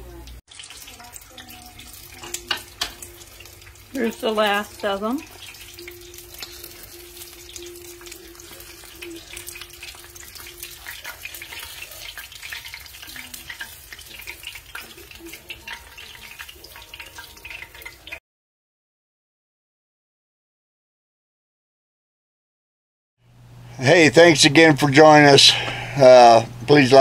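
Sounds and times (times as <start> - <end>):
fish deep-frying in oil: 0.0 - 18.2.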